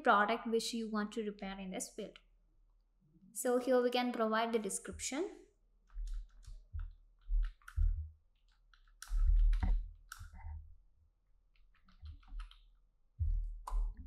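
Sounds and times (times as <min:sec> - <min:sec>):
typing on computer keyboard: 0:05.9 - 0:10.3, 0:11.6 - 0:12.7.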